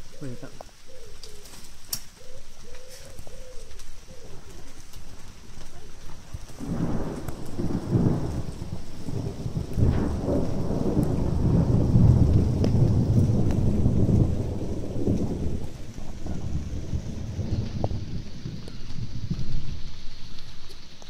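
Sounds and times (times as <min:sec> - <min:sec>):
rain hissing: 0:00.0 - 0:21.0
thunder rumbling and cracking: 0:06.1 - 0:21.0.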